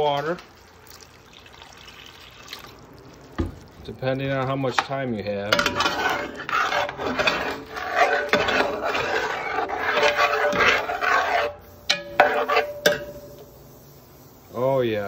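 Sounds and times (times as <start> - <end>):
utensil scraping in a pot: 4.0 - 13.2.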